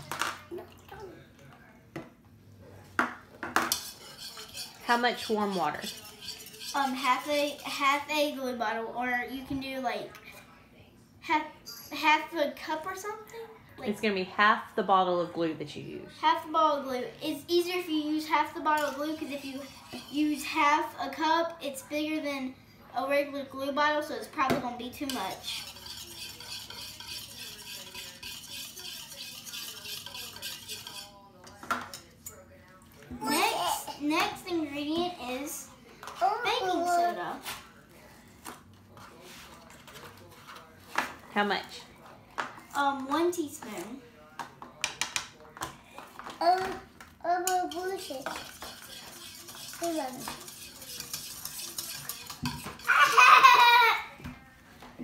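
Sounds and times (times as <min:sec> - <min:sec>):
whisk scraping in plastic bowl: 0:03.6 - 0:08.4, 0:18.4 - 0:20.7, 0:25.0 - 0:31.2, 0:47.5 - 0:53.5.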